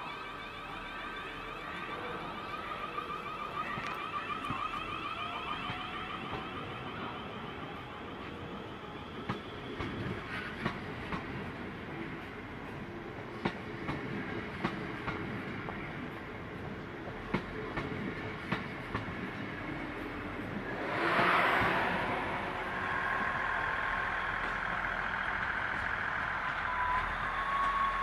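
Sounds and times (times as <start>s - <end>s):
train wheels rumbling on rails: 0.0s - 28.0s
wheels clicking over rail joints: 17.2s - 28.0s.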